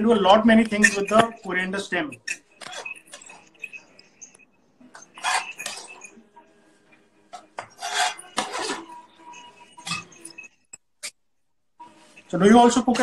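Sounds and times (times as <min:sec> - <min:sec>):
dishes clattering and clinking: 0:00.5 - 0:01.5, 0:02.1 - 0:06.3.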